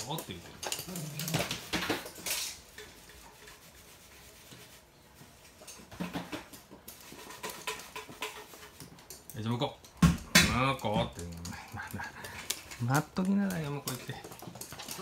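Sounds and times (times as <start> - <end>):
dog claws clicking on hard floor: 0.0 - 2.6, 5.9 - 15.0.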